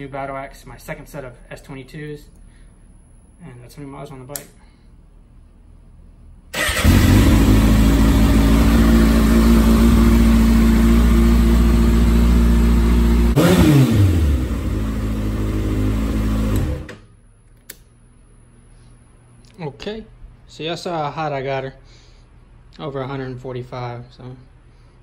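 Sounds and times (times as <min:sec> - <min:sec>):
motorcycle engine running: 0:06.6 - 0:16.9.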